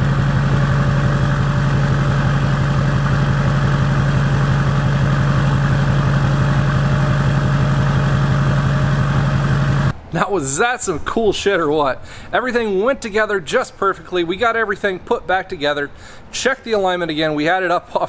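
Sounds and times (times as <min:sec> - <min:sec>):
diesel engine idling: 0:00.0 - 0:10.8.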